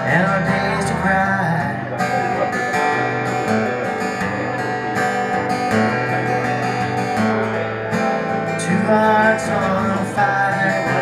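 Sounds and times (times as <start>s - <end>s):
acoustic guitar strumming: 0.0s - 11.0s
person singing: 8.6s - 11.0s.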